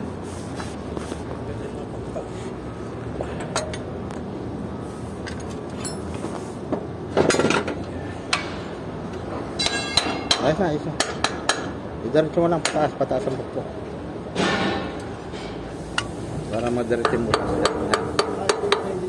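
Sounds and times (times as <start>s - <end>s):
metal clinking and tapping: 9.6s - 11.7s.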